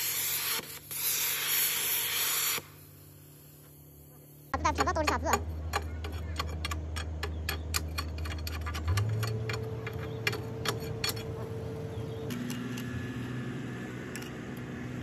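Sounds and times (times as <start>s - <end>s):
steady low hum: 0.0s - 15.0s
metallic ticks and taps: 4.6s - 11.4s.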